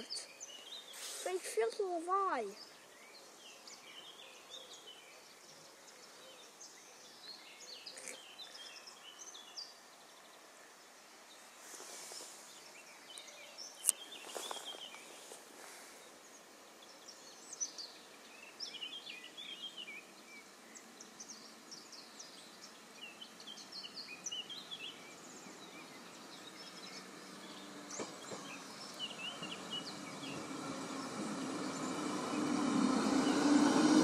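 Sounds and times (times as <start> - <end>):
small birds chirping: 0.0 - 34.0
diesel train rumble: 27.2 - 34.0.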